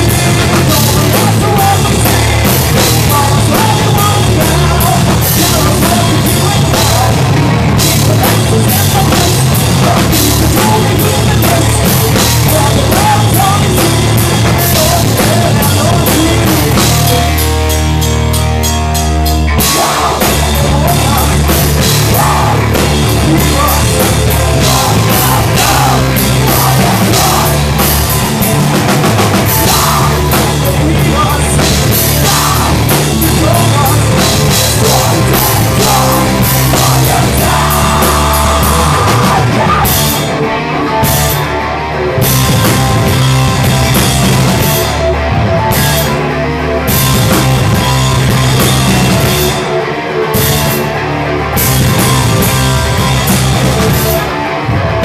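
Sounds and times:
drum kit with cymbals: 0:00.0 - 0:41.6, 0:42.2 - 0:46.3, 0:46.9 - 0:51.0, 0:51.6 - 0:54.5
bass guitar: 0:00.0 - 0:55.0
electric guitar: 0:00.0 - 0:55.0.

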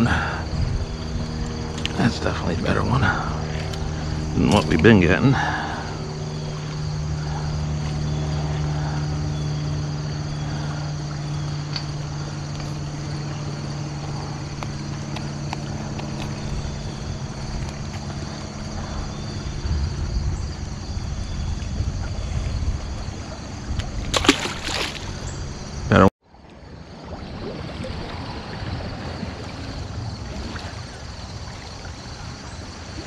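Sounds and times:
wind gusts on microphone: 0:00.0 - 0:06.1, 0:12.8 - 0:26.0
low engine hum: 0:00.0 - 0:33.0.

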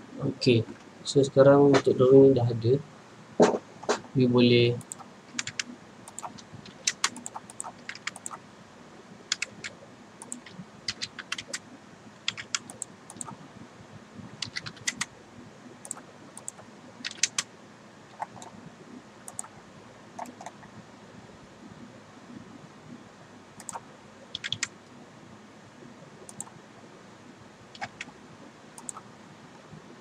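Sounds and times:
keyboard and mouse clicking: 0:04.8 - 0:08.4, 0:09.3 - 0:11.6, 0:12.2 - 0:13.4, 0:14.4 - 0:15.1, 0:15.8 - 0:17.5, 0:18.1 - 0:18.5, 0:19.3 - 0:19.5, 0:20.2 - 0:20.7, 0:23.6 - 0:24.7, 0:26.3 - 0:26.6, 0:27.7 - 0:28.2, 0:28.8 - 0:29.0.

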